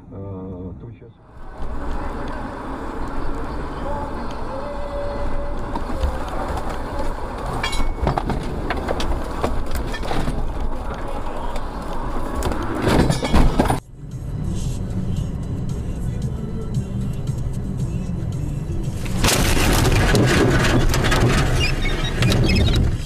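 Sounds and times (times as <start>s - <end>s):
road noise inside car: 0.0s - 23.0s
knocks and rattles: 5.7s - 11.3s, 12.3s - 13.8s, 19.0s - 23.0s
loud impact noise: 19.0s - 21.5s.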